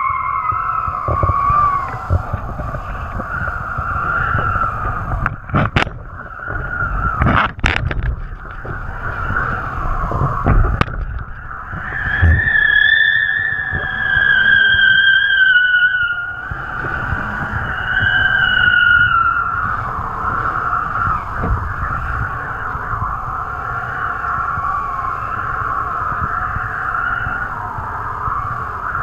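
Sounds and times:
wavering high whistle: 0.0 - 5.1, 11.3 - 29.0
wind buffeting microphone: 0.0 - 29.0.

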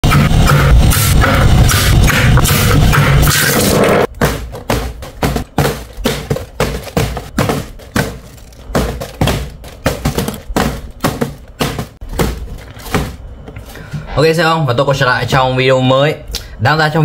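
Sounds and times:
sharp percussive hits: 0.0 - 13.0.

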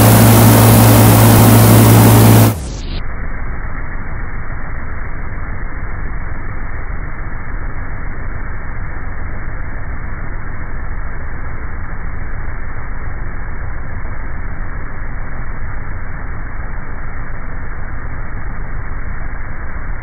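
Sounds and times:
airboat engine and propeller: 0.0 - 2.9.

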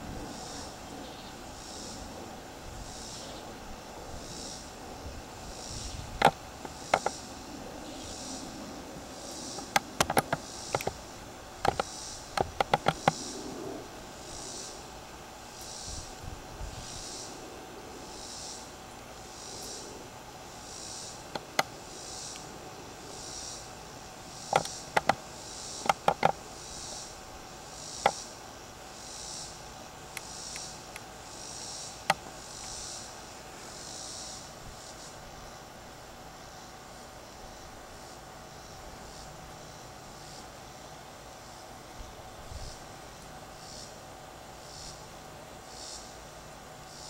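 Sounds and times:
faint cicada buzz: 0.0 - 47.0
tripod clicks and knocks: 6.2 - 7.2, 9.6 - 11.0, 11.6 - 13.2, 24.5 - 25.2, 25.8 - 26.4.

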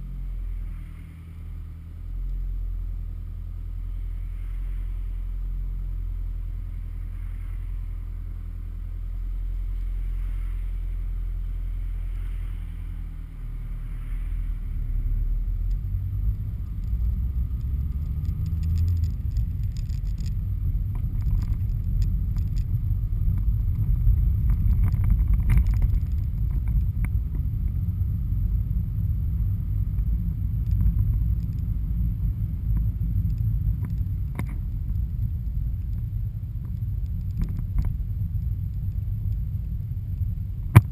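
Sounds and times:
engine and tyres rumbling on road: 0.0 - 40.9
light rattles and knocks: 16.7 - 27.5.

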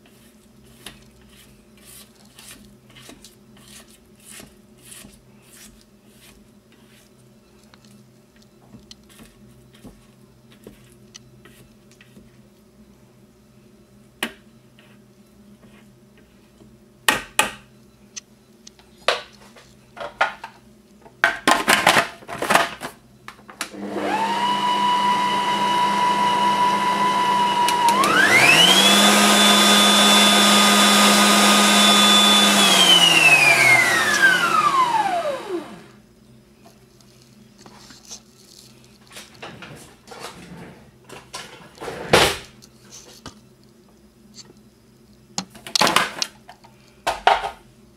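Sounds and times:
food processor motor whining: 23.7 - 36.0.

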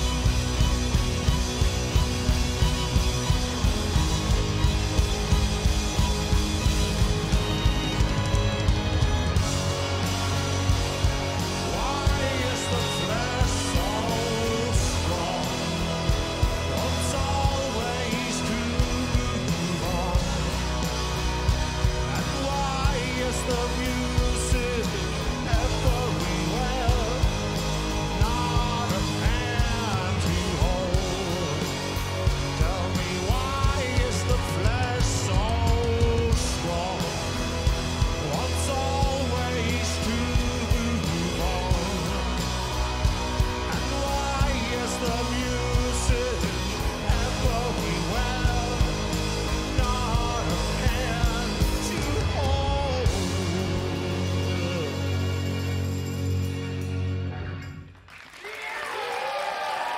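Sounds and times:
drums: 0.0 - 59.9
electric guitar: 0.0 - 59.9
man singing: 10.0 - 55.8.

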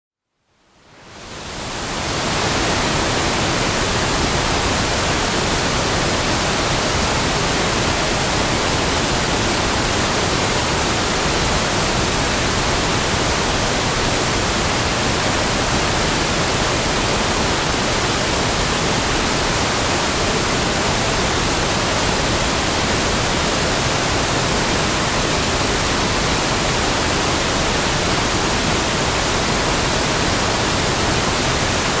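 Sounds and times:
waterfall rushing: 1.0 - 32.0.

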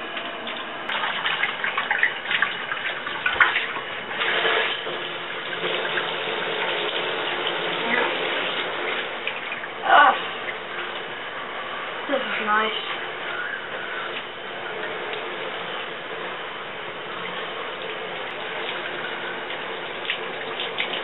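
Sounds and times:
shower spraying water: 0.0 - 21.0
water splashing on person: 0.4 - 11.2, 17.2 - 21.0.

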